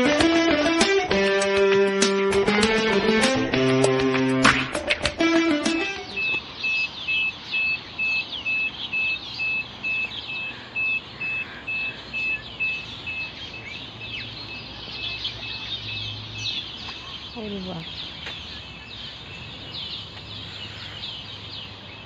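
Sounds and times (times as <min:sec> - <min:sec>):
birds chirping: 0:00.0 - 0:22.0
alarm beeping: 0:05.1 - 0:16.2.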